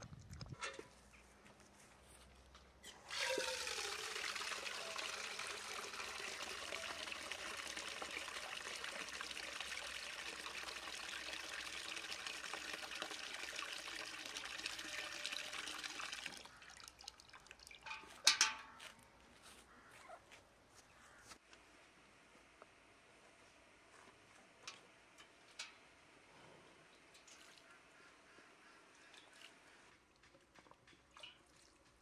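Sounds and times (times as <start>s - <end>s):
water pouring into metal bucket: 2.9s - 18.5s.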